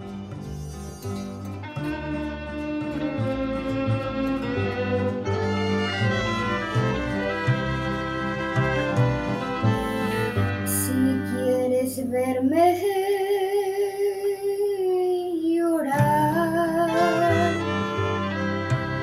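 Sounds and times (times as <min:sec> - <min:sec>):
mariachi ensemble playing: 0:00.0 - 0:11.8, 0:16.6 - 0:19.0
girl singing: 0:10.7 - 0:17.7.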